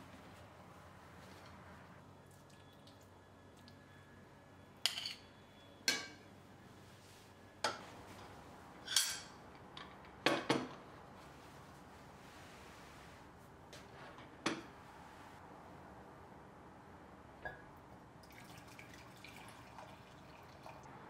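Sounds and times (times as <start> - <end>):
dishes and glassware clinking: 4.8 - 5.3, 8.8 - 9.4.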